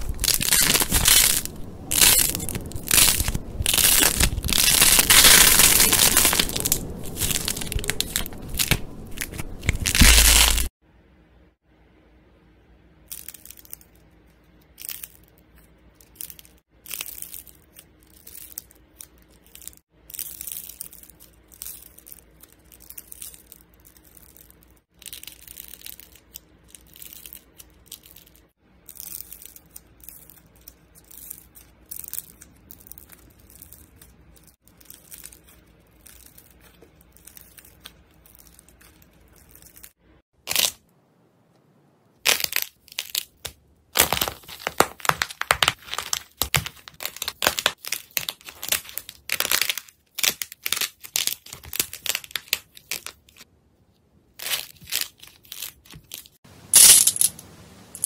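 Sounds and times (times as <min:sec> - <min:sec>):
crunchy slime crackling: 0:00.0 - 0:10.7, 0:42.2 - 0:53.5.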